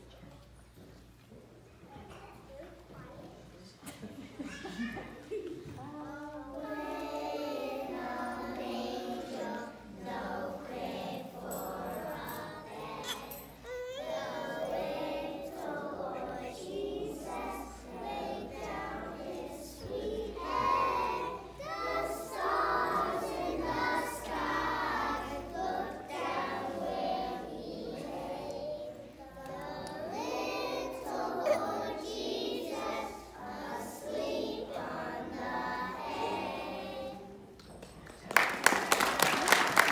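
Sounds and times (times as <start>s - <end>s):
children singing: 5.7s - 37.5s.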